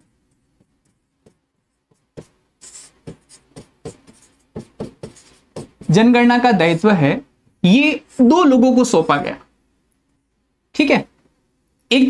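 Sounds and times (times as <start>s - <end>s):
stylus tapping and scratching screen: 0.0s - 6.4s.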